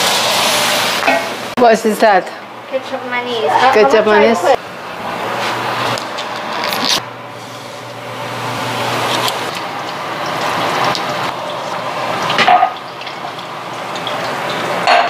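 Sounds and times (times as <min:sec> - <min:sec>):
food sizzling in oil: 0:00.0 - 0:01.6, 0:04.5 - 0:15.0
utensils clinking on pans: 0:10.2 - 0:15.0.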